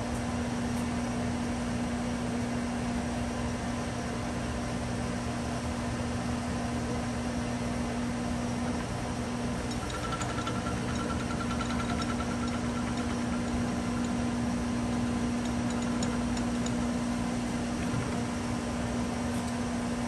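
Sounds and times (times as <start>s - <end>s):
lathe running with steady hum: 7.7s - 20.0s.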